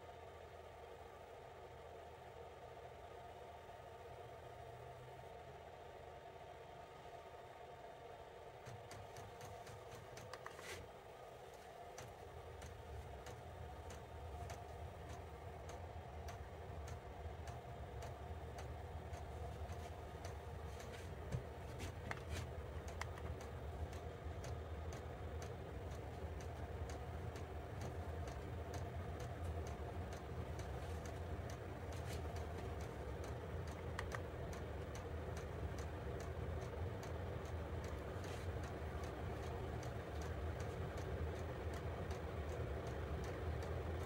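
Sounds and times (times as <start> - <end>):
heater humming: 0.0 - 44.0
light even ticking: 8.6 - 10.6, 11.8 - 44.0.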